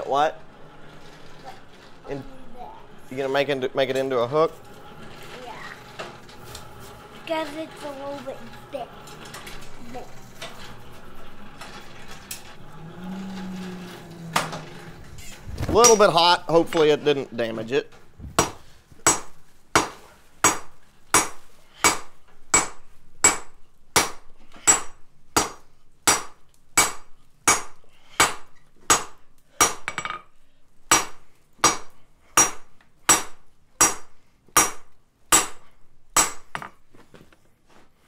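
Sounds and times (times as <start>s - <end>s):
hammer striking steel on anvil: 18.4s - 30.2s, 30.9s - 35.6s, 36.2s - 36.7s.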